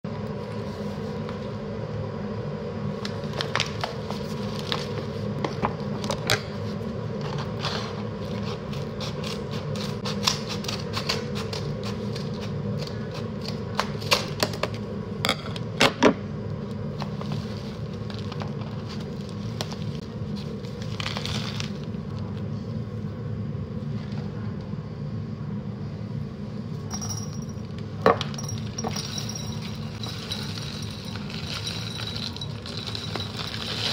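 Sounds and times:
scissors snipping paper: 8.3s - 14.3s
low hum: 14.6s - 33.9s
paper bag crinkling: 30.0s - 33.9s.

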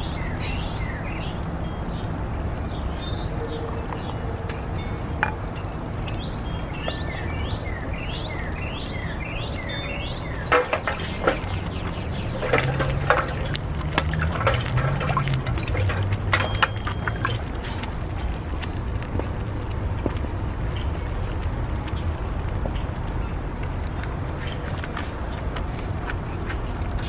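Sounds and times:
water pouring into pot: 12.4s - 17.6s.

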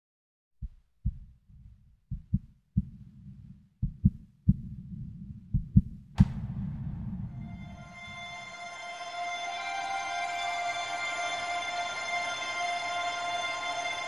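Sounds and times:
heartbeat thumps: 0.6s - 7.8s
low rumble: 1.1s - 9.1s
loud crash: 6.2s - 8.6s
music: 6.2s - 14.0s.

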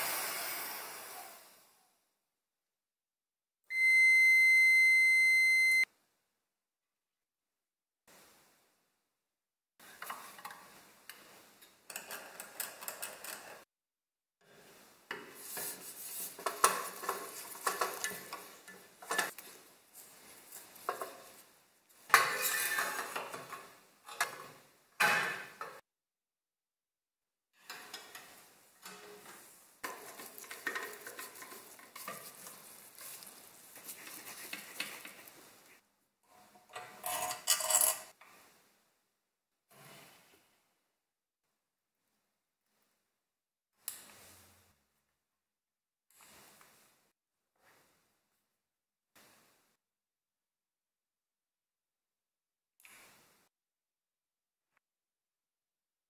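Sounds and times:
metal pieces clinking and scraping: 37.0s - 38.1s.

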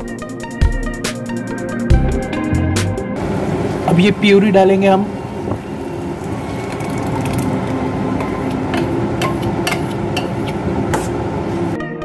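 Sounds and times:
metal spoon scraping steel bowl: 8.2s - 11.2s.

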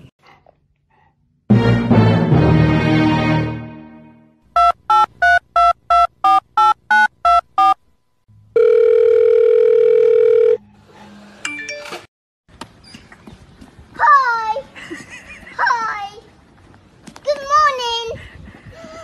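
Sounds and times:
telephone keypad dialling beeps: 4.6s - 7.8s
telephone ringing tone: 8.6s - 10.6s.

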